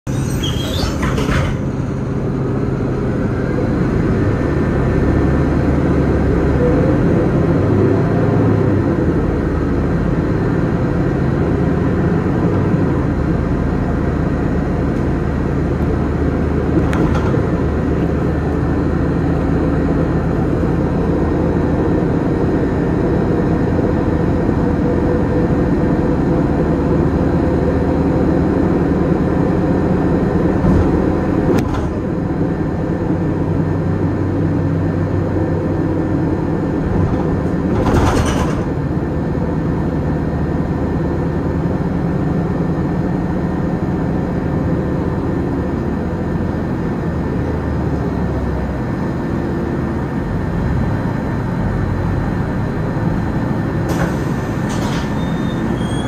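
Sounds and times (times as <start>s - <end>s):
bus engine running: 0.0s - 56.0s
road and tyre noise: 0.0s - 56.0s.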